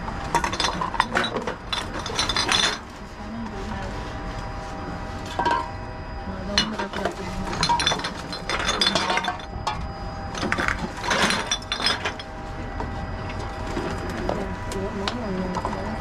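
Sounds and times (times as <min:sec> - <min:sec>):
faint steady hum: 0:00.0 - 0:16.0
bottles and cans clinking: 0:00.3 - 0:02.9, 0:05.3 - 0:05.7, 0:06.5 - 0:12.3.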